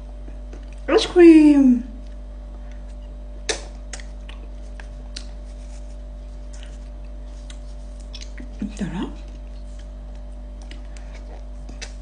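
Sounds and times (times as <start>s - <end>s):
steady low hum: 0.0s - 12.0s
wet mouth clicks and lip smacks: 7.4s - 8.5s, 11.7s - 12.0s.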